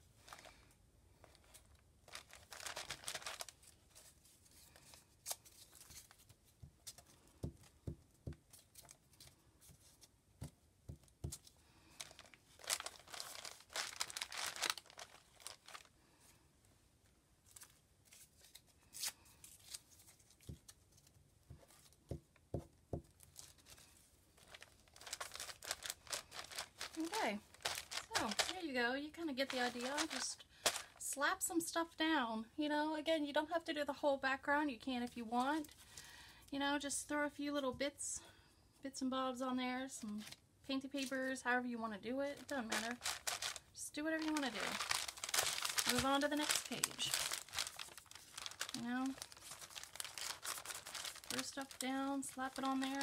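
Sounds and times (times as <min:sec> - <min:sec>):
paper rustling and rubbing: 0:01.4 - 0:07.1, 0:11.4 - 0:15.9, 0:23.3 - 0:28.7, 0:29.4 - 0:31.0, 0:42.4 - 0:53.0.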